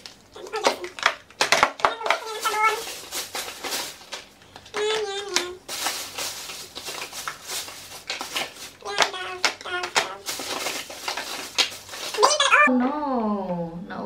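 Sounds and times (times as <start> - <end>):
person murmuring: 8.8 - 10.3.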